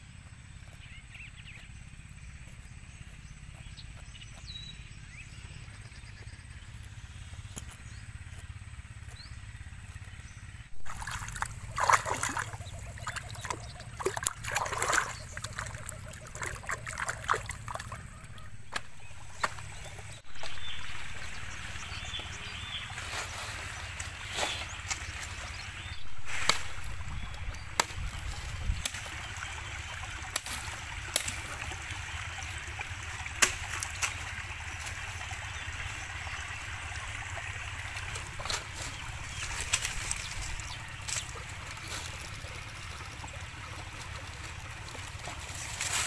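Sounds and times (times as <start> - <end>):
steady low rumble: 0.0 - 46.0
dry sticks and leaves crackling: 6.6 - 29.4, 30.0 - 32.0, 33.2 - 35.0, 37.8 - 46.0
water splashing: 10.8 - 46.0.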